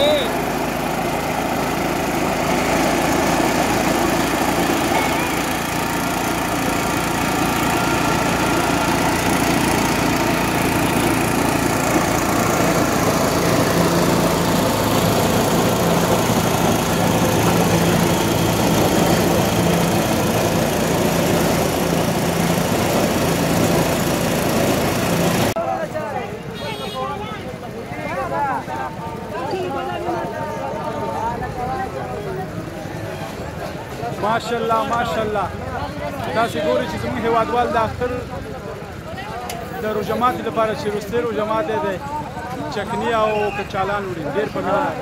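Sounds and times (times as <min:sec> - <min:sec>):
small engine running: 0:00.0 - 0:25.6, 0:36.4 - 0:42.3.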